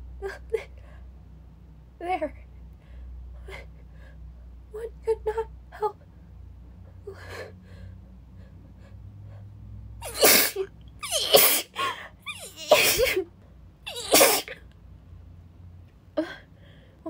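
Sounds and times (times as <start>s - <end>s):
woman sneezing: 10.0s - 13.2s, 13.9s - 14.6s
faint gasping breaths: 16.2s - 17.0s.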